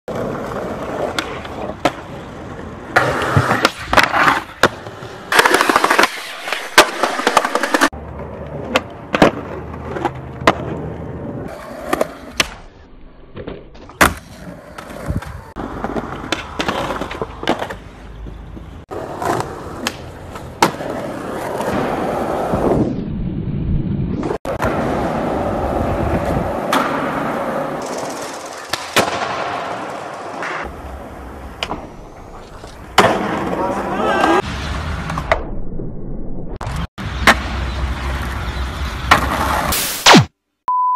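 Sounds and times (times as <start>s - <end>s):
skateboard sliding on ledge: 0.1s - 12.6s
skateboard wheels rolling on concrete: 0.1s - 35.5s, 36.6s - 39.8s
skateboard landing slaps: 2.9s - 10.8s, 11.9s - 12.7s, 13.4s - 17.8s, 19.2s - 22.1s, 26.6s - 30.7s, 31.5s - 32.0s, 32.6s - 35.4s, 36.6s - 37.6s
skateboard tail pops: 11.9s - 12.7s, 27.9s - 30.7s.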